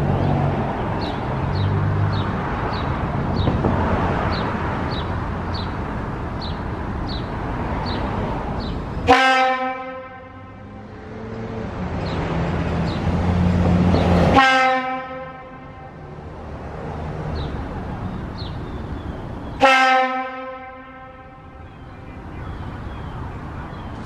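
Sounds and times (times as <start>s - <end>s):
fire horn blasts: 9.0s - 11.0s, 14.3s - 16.0s, 19.6s - 21.7s.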